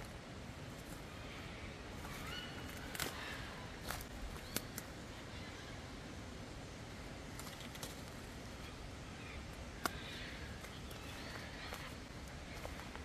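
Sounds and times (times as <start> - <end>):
footsteps on a bush track: 0.0 - 4.8, 9.8 - 13.0
steady outdoor hiss: 0.0 - 13.0
faint bird calls: 0.8 - 6.2, 8.4 - 13.0.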